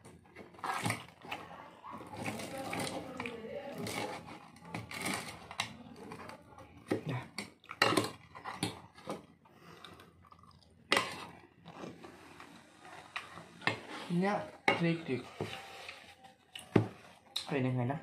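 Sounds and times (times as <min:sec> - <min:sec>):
chewing and crunching fritters: 0:00.0 - 0:13.7.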